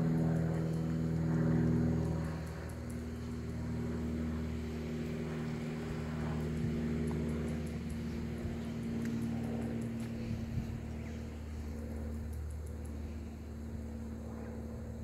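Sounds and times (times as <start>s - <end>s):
motor humming: 0.0s - 15.0s.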